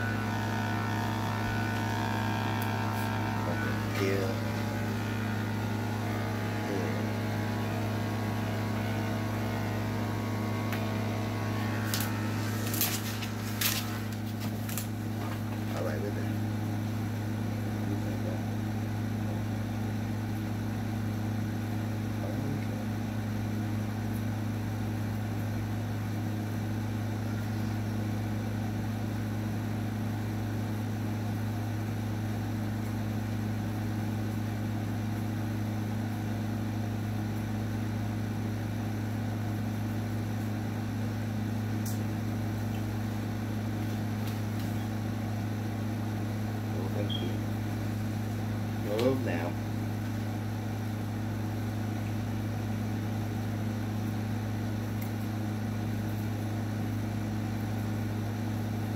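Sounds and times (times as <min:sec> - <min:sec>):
electric clippers humming: 0:00.0 - 0:15.9.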